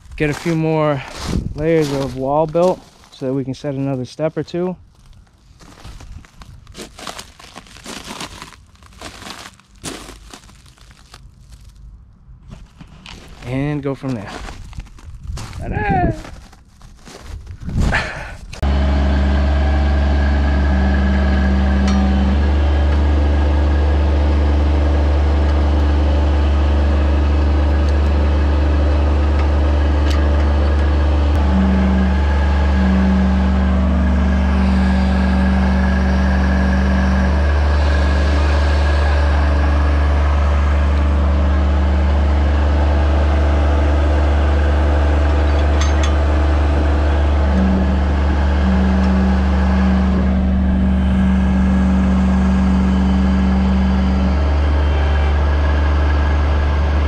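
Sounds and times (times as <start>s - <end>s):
track loader engine running: 0.0s - 17.2s, 18.0s - 57.0s
higher hydraulic hum: 17.9s - 57.0s.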